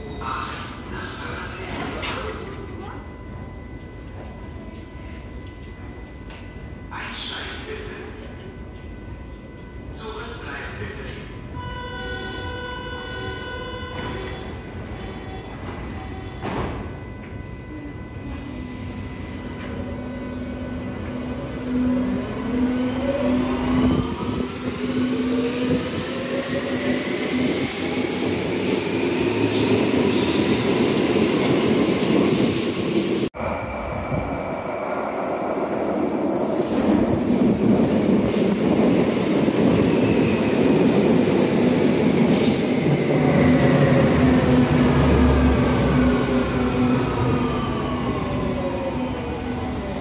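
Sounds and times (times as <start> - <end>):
train rumbling in: 13.8 - 50.0.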